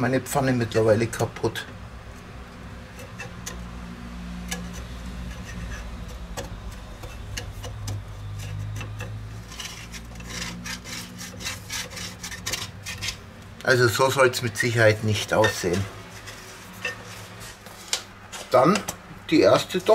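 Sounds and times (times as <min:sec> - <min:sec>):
plastic spatula scraping frying pan: 0:02.2 - 0:13.3, 0:14.8 - 0:18.9.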